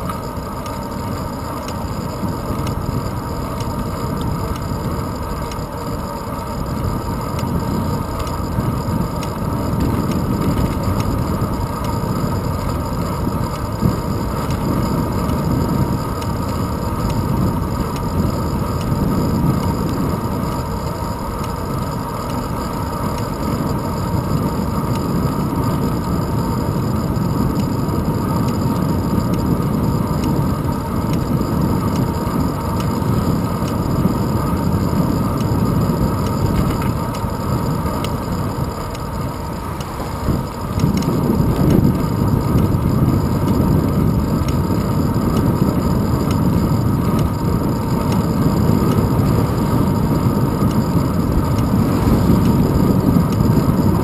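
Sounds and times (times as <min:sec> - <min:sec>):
bicycle road rumble: 0:00.0 - 0:54.0
wind rush: 0:23.4 - 0:54.0.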